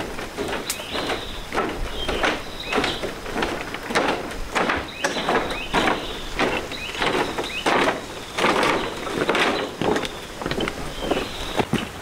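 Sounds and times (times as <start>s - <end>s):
bamboo creaking and squeaking: 0.0s - 12.0s
footsteps on bamboo bridge: 0.0s - 12.0s.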